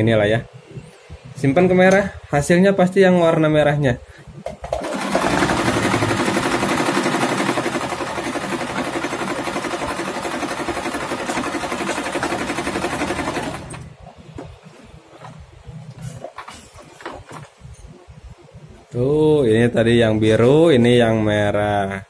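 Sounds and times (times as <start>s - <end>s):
sewing machine running: 4.7s - 13.9s.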